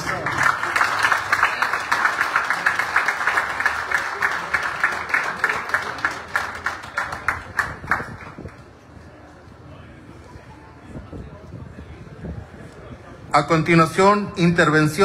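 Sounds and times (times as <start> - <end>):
people clapping: 0.0 - 8.7.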